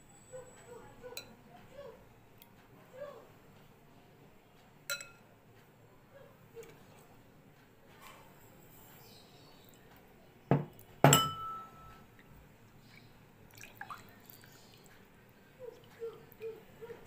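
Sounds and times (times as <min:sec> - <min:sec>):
knocks on glass bowl: 0:10.5 - 0:11.6.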